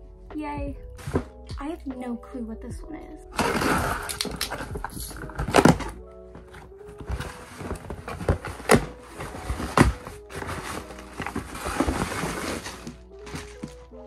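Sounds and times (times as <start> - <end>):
soft background music: 0.0 - 14.0
plastic packing rustling: 1.0 - 1.4, 3.4 - 14.0
packing tape ripping: 3.4 - 6.0.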